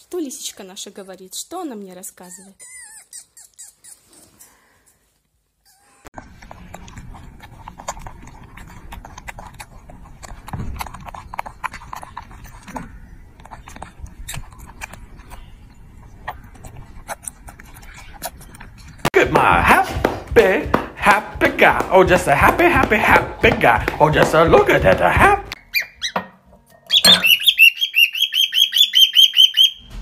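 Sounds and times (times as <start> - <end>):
monkey chewing: 5.7 - 26.1.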